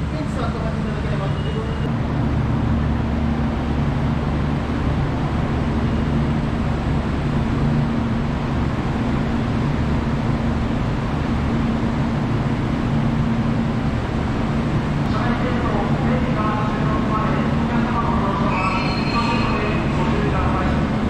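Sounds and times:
electric trains humming: 0.0 - 21.0.

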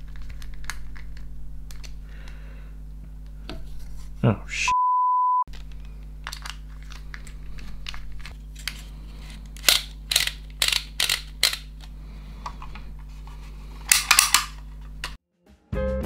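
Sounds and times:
faint steady hum: 0.0 - 4.7.

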